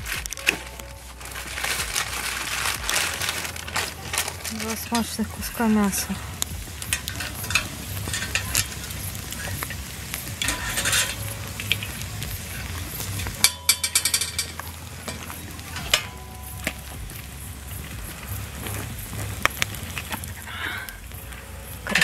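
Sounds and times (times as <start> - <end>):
meat sizzling over charcoal: 0.0 - 22.0
metal grill basket rattling: 0.0 - 22.0
fork scraping meat and wire: 6.4 - 16.8.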